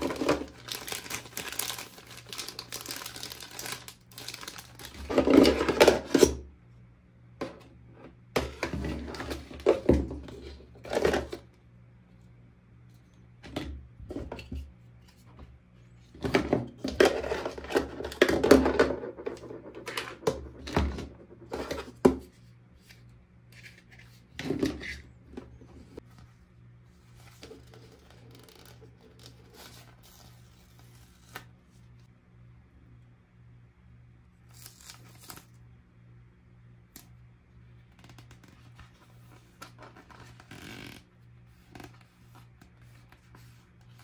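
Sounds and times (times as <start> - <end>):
plastic pieces and packaging clattering: 0.0 - 6.2.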